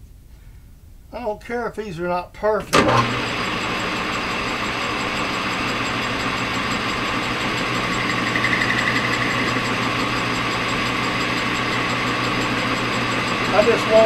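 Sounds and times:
metal lathe cutting: 2.8s - 14.0s
pulsing high-pitched tone: 5.8s - 10.9s.

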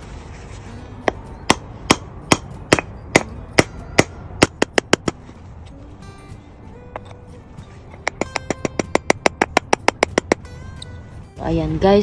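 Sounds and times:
hammer tapping steel punch: 8.0s - 10.4s.

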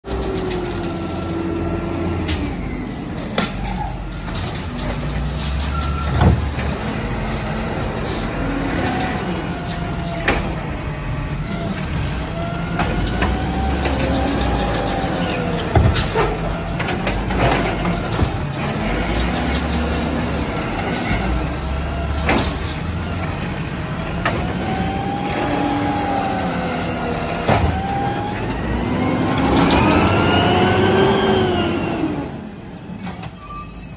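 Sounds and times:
garbage truck engine running: 0.1s - 32.5s.

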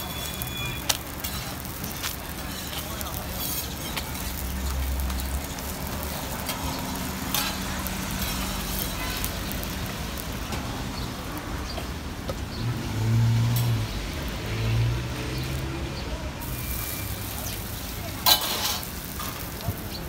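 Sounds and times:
flatbread frying on griddle: 0.0s - 20.0s
metal spatulas scraping griddle: 2.4s - 4.4s, 6.4s - 9.2s, 18.2s - 19.4s.

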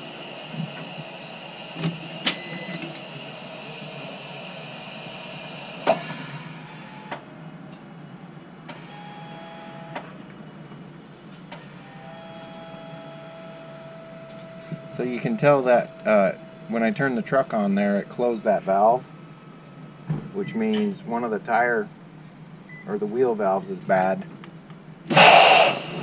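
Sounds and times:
valve hissing air: 0.0s - 7.2s, 25.1s - 26.0s.

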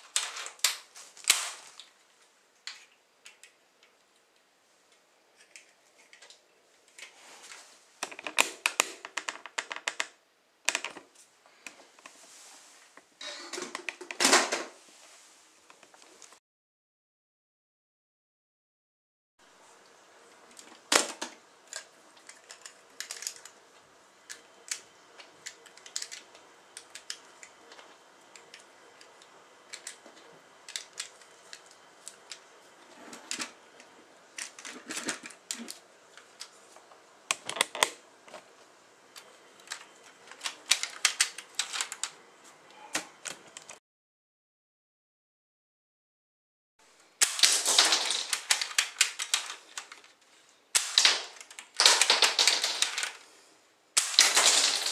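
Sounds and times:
plastic parts clicking and snapping: 2.6s - 4.0s, 8.0s - 11.8s, 20.5s - 23.6s, 24.2s - 32.4s, 33.1s - 36.6s, 37.3s - 38.4s, 39.2s - 42.2s, 47.2s - 53.2s.

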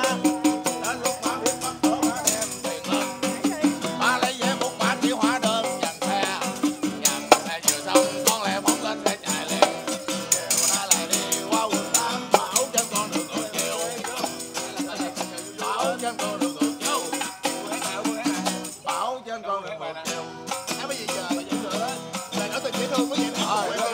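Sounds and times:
tambourine jingling: 0.0s - 19.2s, 20.4s - 23.9s
acoustic guitar strumming: 0.0s - 23.9s
man singing: 0.0s - 23.9s.

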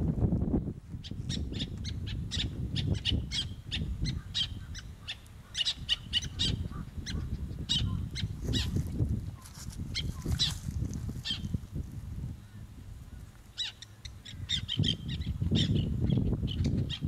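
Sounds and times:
terns calling: 1.0s - 8.8s, 12.4s - 17.0s.

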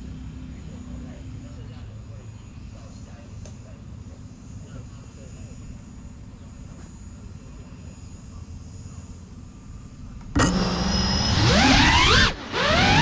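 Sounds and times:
drone motors whining: 5.4s - 13.0s.

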